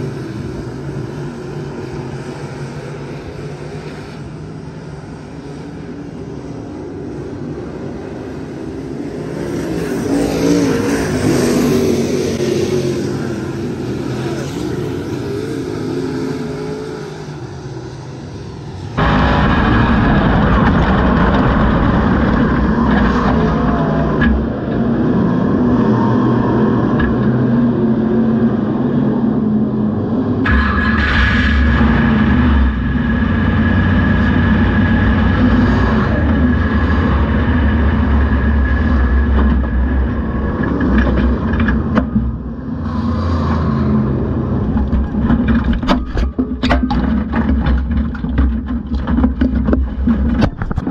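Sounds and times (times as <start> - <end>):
race car engine running: 19.0 - 25.8.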